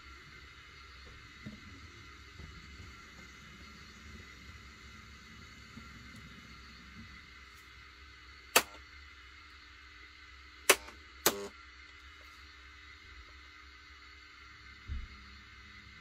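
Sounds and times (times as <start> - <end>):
faint steady hum: 0.0 - 16.0
sharp clicks: 8.5 - 8.8, 10.7 - 11.5.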